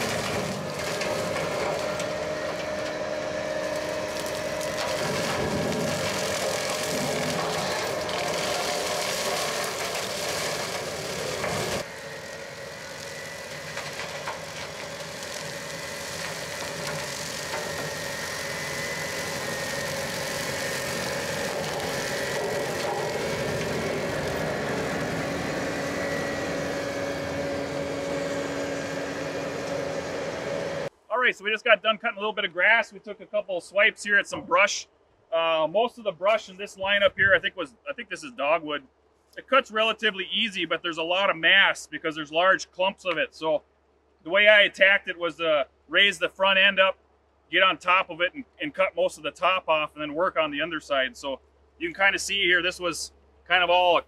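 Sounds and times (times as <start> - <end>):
brush mower cutting brush: 0.0 - 30.9
diesel engine running under load: 0.0 - 30.9.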